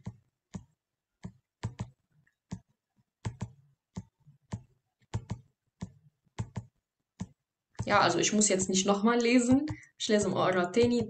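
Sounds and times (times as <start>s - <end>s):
mouse and keyboard clicks: 0.0s - 7.4s.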